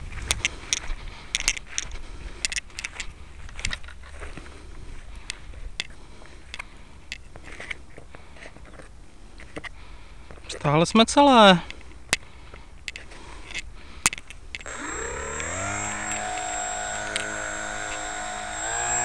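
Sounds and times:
wind rumbling on microphone: 0.0s - 6.6s
footsteps in dry grass: 0.0s - 8.8s, 14.7s - 19.0s
sharp clicking handling noises: 0.1s - 4.5s, 11.6s - 19.0s.

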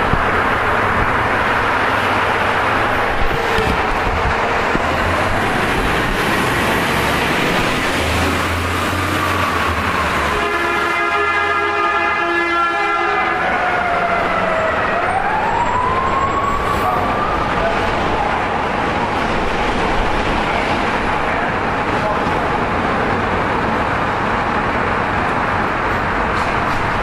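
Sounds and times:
city street traffic: 0.0s - 27.0s
multi-tone car horn: 10.2s - 14.5s
siren in background: 12.5s - 18.9s.

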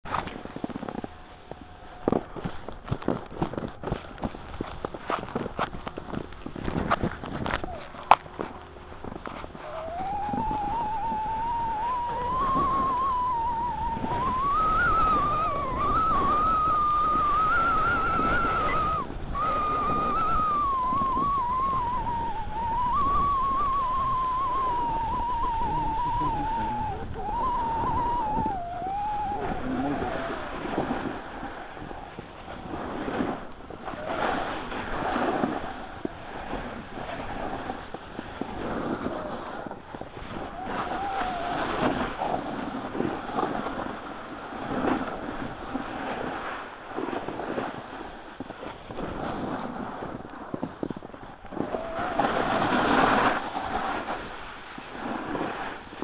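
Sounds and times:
rush of wind and snow: 0.1s - 56.0s
whistling tone: 9.6s - 31.2s, 40.2s - 42.6s, 51.6s - 53.9s.

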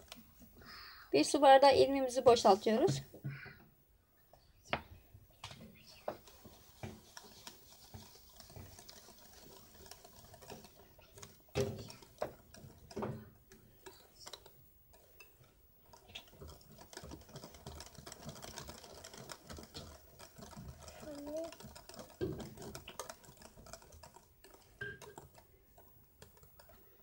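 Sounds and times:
whisk knocking bowl: 6.0s - 27.0s
whisk clicking against glass bowl: 6.2s - 27.0s.

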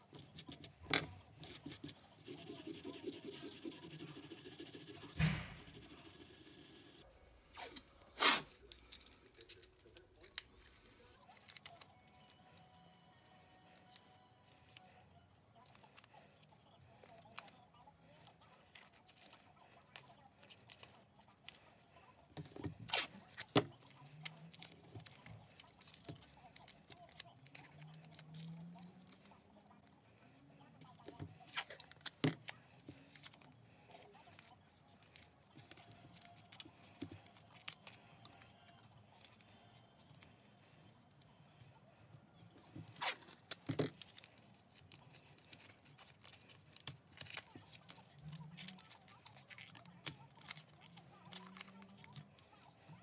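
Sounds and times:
tape pulled and torn: 7.5s - 8.6s, 22.9s - 23.6s, 42.8s - 44.3s
tape crackling and rustling: 7.5s - 40.7s, 42.5s - 53.0s.

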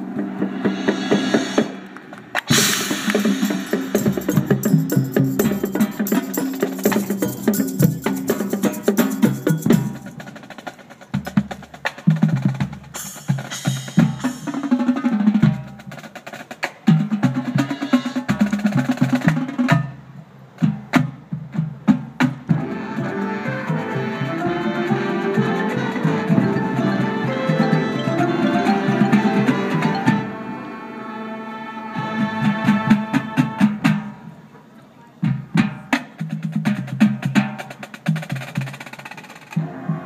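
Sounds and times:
low pitched drum notes: 0.0s - 10.5s
marching drums playing: 0.0s - 20.0s, 20.6s - 30.4s, 32.0s - 34.3s, 35.2s - 40.0s.

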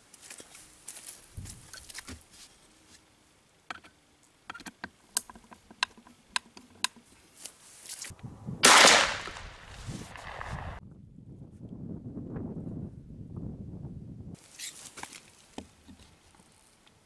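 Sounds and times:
loud shotgun shot: 8.6s - 10.8s.

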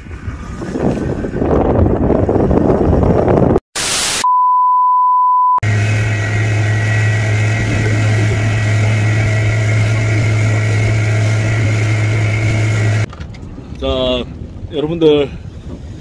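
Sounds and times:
high single-pitch beep: 4.2s - 5.6s
outboard motor running: 5.6s - 13.1s.

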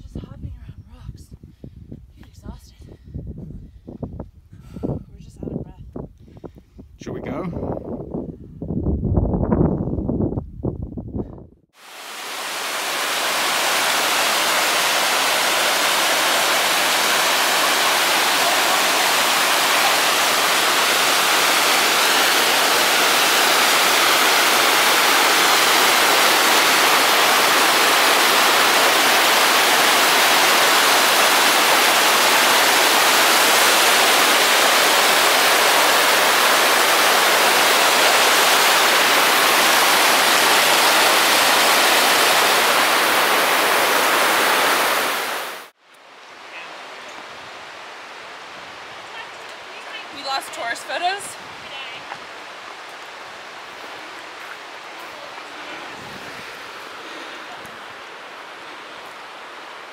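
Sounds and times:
stream rushing over boulders: 11.8s - 59.9s.

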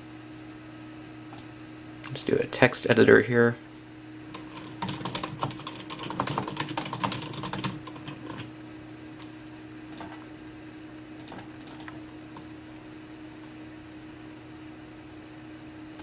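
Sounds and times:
computer keyboard typing: 4.3s - 8.5s, 9.9s - 10.2s, 11.2s - 12.5s.

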